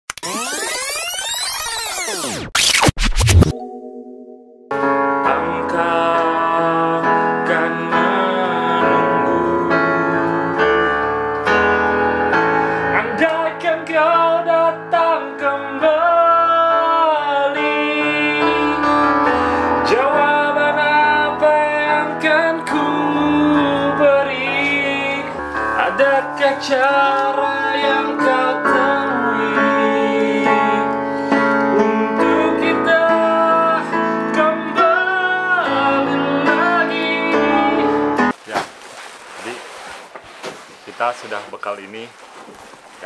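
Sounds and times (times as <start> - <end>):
electronic keyboard chords: 0.1 - 38.4
man singing: 5.1 - 11.0, 12.9 - 38.3.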